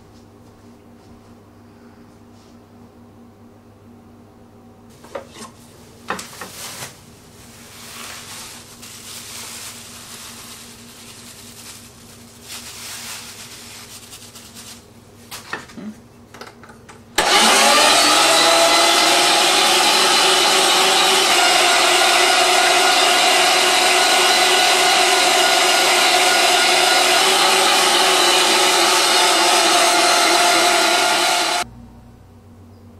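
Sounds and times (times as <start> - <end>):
meat grinder motor running: 17.2 - 31.6.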